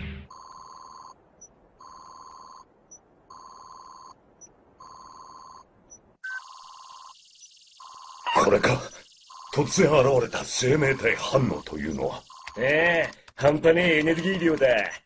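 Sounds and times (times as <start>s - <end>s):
electronic alarm beeps: 0.3s - 12.7s
steady alarm tone: 4.8s - 12.6s.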